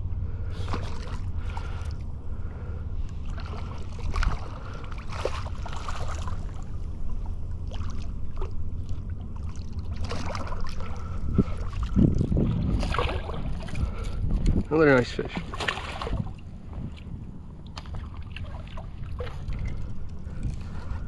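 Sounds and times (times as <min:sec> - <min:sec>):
water splashing and sloshing: 0:00.2 - 0:21.0
wind on microphone: 0:10.9 - 0:21.0.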